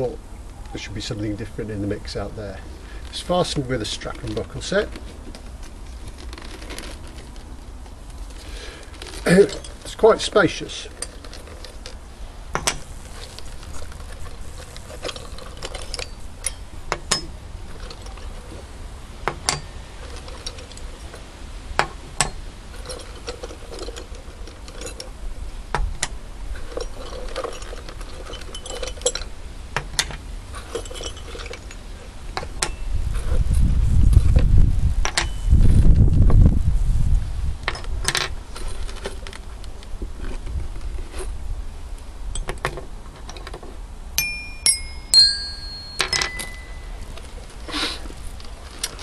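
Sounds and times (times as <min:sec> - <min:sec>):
metal buckle clicking: 0:12.6 - 0:18.2.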